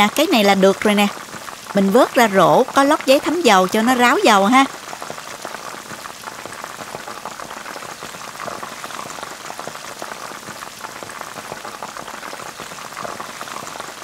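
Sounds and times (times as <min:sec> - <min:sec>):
oil sizzling and crackling: 0:00.0 - 0:14.0.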